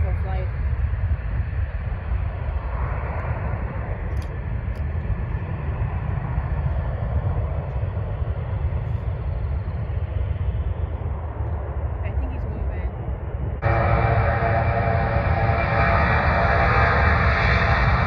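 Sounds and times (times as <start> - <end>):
jet engines distant rumble: 0.0 - 18.0.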